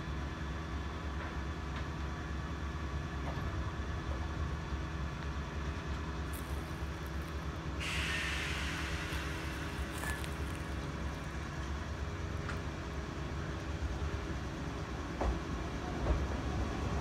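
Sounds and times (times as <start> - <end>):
compressed air hiss: 6.3 - 11.6
electric train humming: 6.3 - 17.0.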